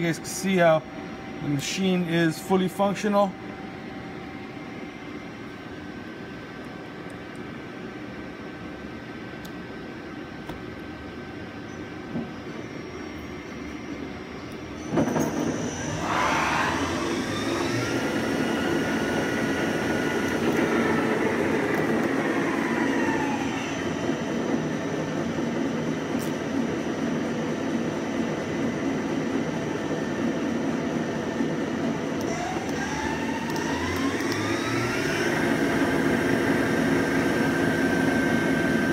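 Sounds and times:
lathe spindle whine: 0.0s - 7.0s, 9.9s - 38.9s
machine running hum: 0.0s - 38.9s.

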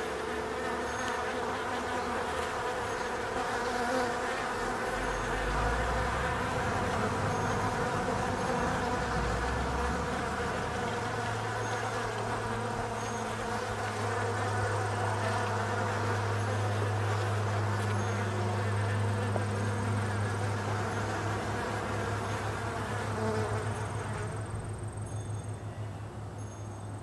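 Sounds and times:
insects buzzing: 0.0s - 27.0s
low rumble: 4.9s - 11.5s.

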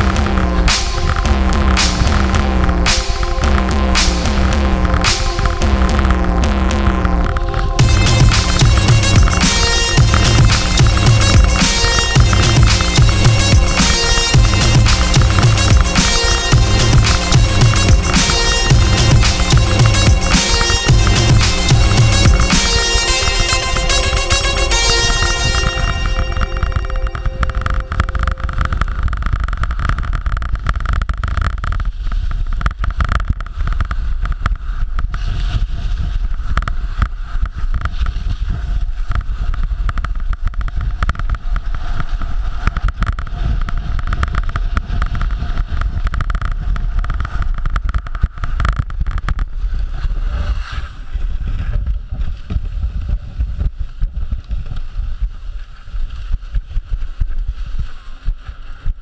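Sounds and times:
skis scraping over snow: 0.0s - 59.0s.

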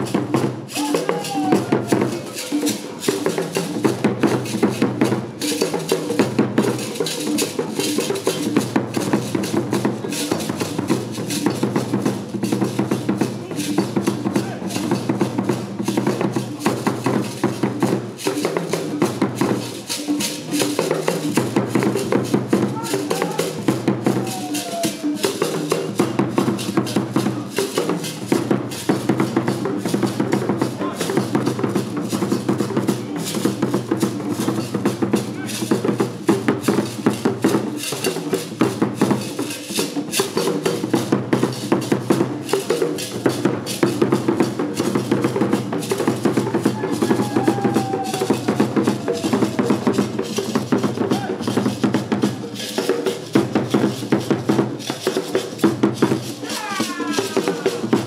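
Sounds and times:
barrel drums in interlocking rhythm: 0.0s - 58.0s
gourd rattle shaking: 45.8s - 53.6s, 54.8s - 58.0s.

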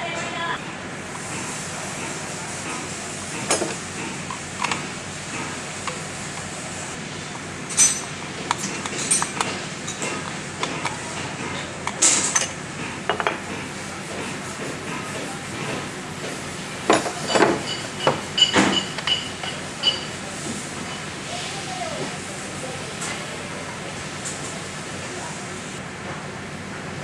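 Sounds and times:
tools clinking on metal housing: 7.7s - 10.9s.

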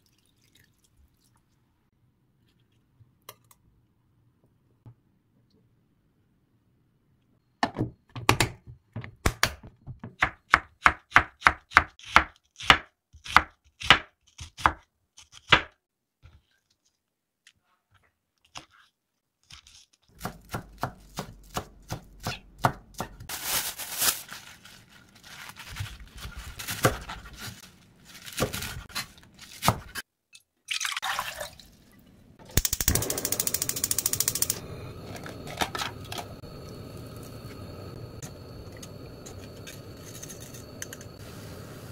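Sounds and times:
steady hiss: 35.9s - 41.9s.

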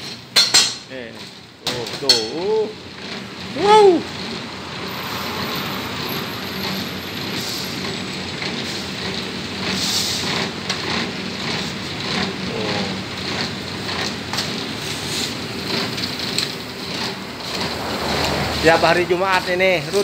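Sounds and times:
steady rushing noise: 15.2s - 20.0s.

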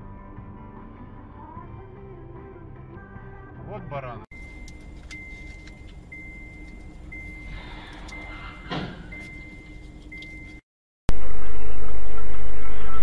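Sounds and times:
car road noise: 4.4s - 10.6s.

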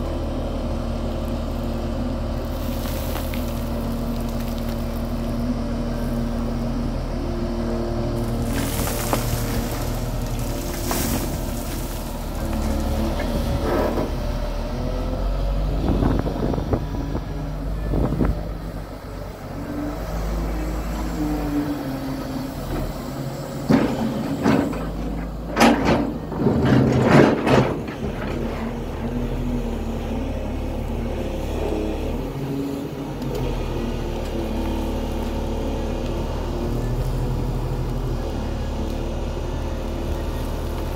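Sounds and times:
excavator diesel engine running: 0.0s - 40.9s
bucket knocking and scraping rock: 8.2s - 14.0s.

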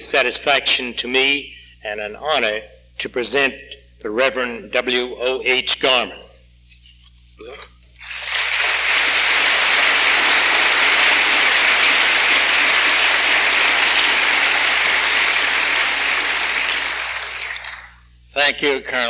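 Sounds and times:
audience applauding: 8.0s - 18.0s.

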